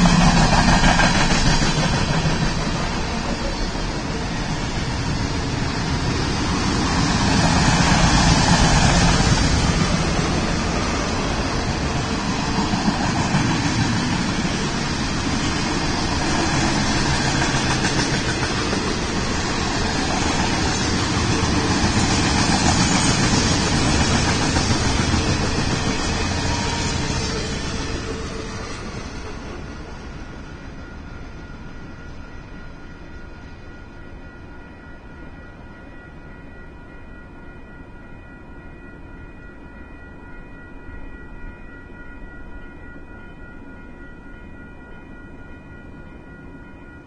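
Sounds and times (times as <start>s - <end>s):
steel wheels rumbling on rail: 0.0s - 35.6s.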